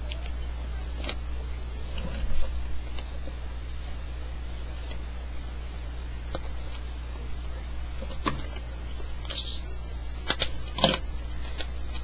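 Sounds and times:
low electrical hum: 0:00.0 - 0:12.0
paper being folded and creased: 0:01.0 - 0:05.6.

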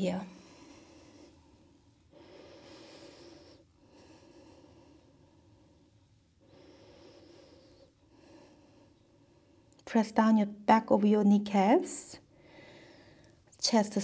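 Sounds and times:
woman breathing slowly: 0:00.3 - 0:09.8, 0:12.2 - 0:13.5.

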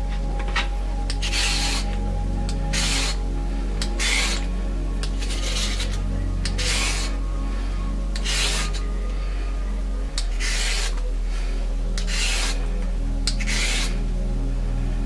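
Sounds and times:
low background music: 0:00.0 - 0:15.0
peeler scraping carrot: 0:01.1 - 0:02.0, 0:02.7 - 0:03.2, 0:04.0 - 0:07.2, 0:08.2 - 0:08.8, 0:10.2 - 0:11.0, 0:12.0 - 0:12.6, 0:13.2 - 0:14.0.

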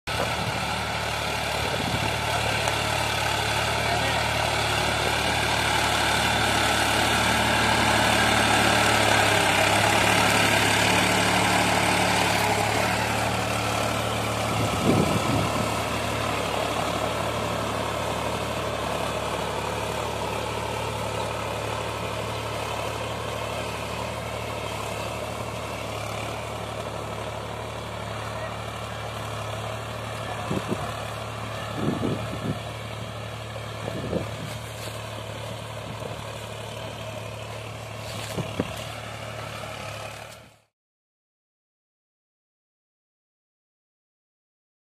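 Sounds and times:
tractor diesel engine running: 0:00.1 - 0:40.7.

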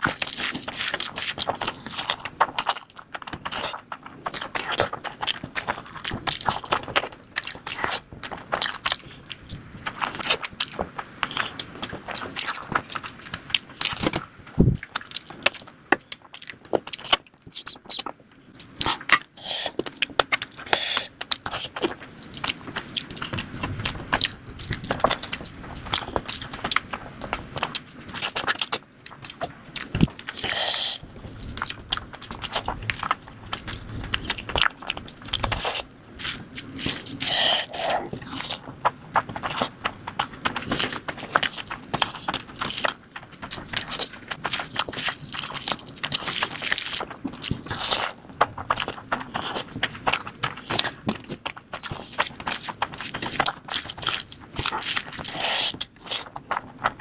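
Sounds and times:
wet chewing and lip smacking: 0:00.0 - 0:26.9, 0:27.6 - 0:38.7, 0:39.3 - 0:56.8.

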